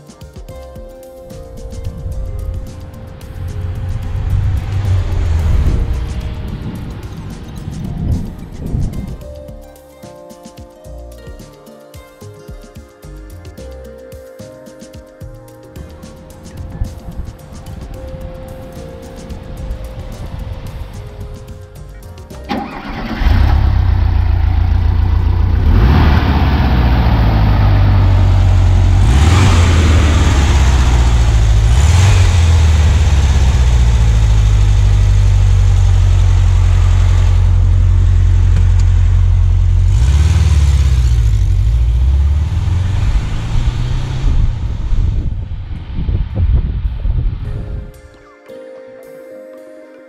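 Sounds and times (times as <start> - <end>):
car engine idling: 1.8 - 8.8, 21.8 - 45.2.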